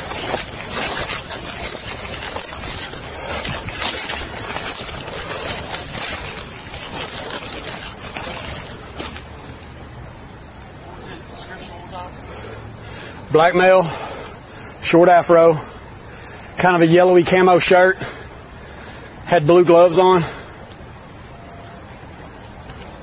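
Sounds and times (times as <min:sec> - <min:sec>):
footsteps crunching through dry leaves: 0:00.0 - 0:12.3.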